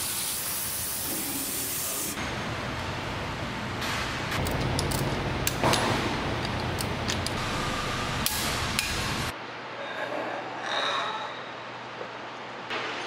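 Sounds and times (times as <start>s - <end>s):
workshop noise: 0.0s - 9.4s.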